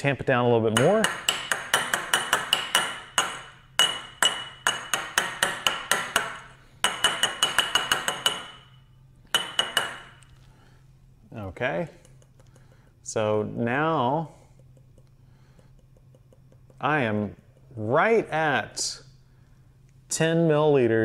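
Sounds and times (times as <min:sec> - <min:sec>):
glass cylinder tapped on bench: 0:00.8 - 0:08.7, 0:09.3 - 0:10.1.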